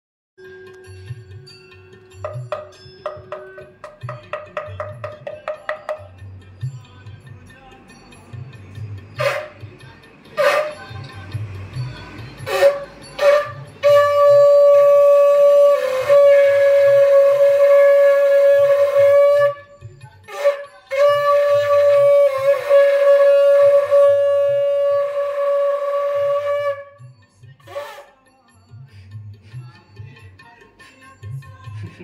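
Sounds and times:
conch shell blasts: 0:09.2 - 0:09.7, 0:10.4 - 0:11.0, 0:12.4 - 0:27.0.

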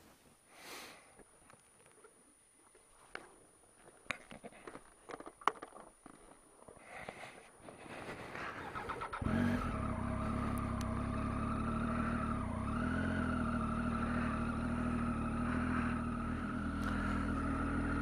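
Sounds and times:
motorcycle engine running: 0:08.4 - 0:18.0.

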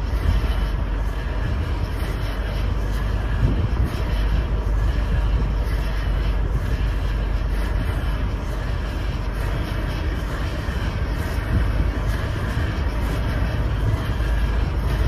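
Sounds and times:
road and tyre noise: 0:00.0 - 0:15.0
wind buffeting microphone: 0:00.0 - 0:15.0.

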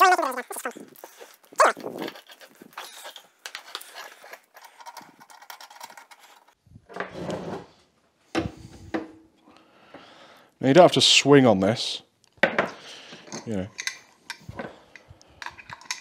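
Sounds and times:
hose handling clicks and rustles: 0:00.0 - 0:07.1, 0:13.1 - 0:16.0.

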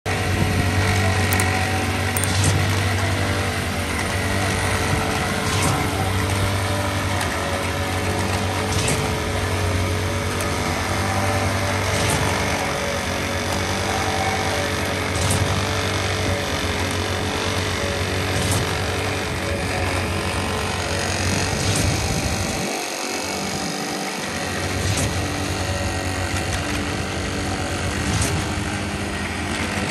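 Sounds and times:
small engine running: 0:00.1 - 0:29.9.

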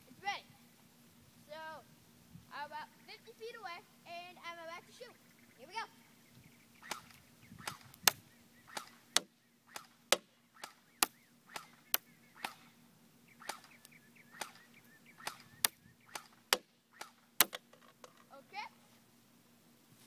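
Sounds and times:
airsoft gun sharp cracks: 0:06.8 - 0:12.7, 0:13.4 - 0:14.6, 0:15.2 - 0:17.7.

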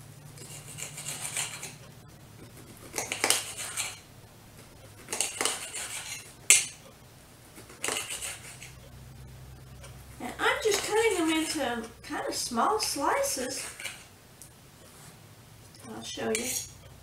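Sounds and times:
knife sawing through steak: 0:00.4 - 0:01.8, 0:02.8 - 0:04.0, 0:05.2 - 0:06.3, 0:07.8 - 0:08.7, 0:10.9 - 0:11.6
knife clinking on glass plate: 0:16.3 - 0:16.7.

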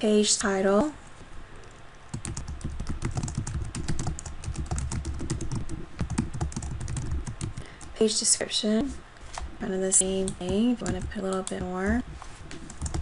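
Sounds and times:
fast typing on keyboard: 0:02.1 - 0:08.0, 0:10.0 - 0:12.0, 0:12.6 - 0:13.0.

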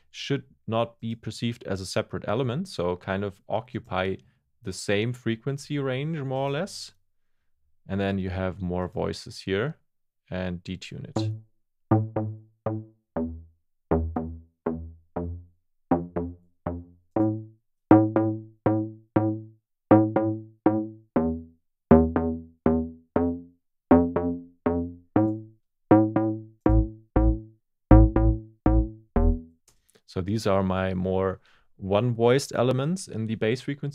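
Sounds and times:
plucky synth bass notes: 0:11.2 - 0:29.6
sine sub bass: 0:26.7 - 0:29.5.

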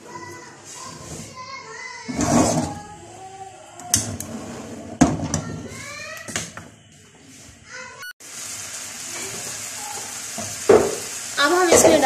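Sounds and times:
pan sizzling: 0:07.7 - 0:12.0.

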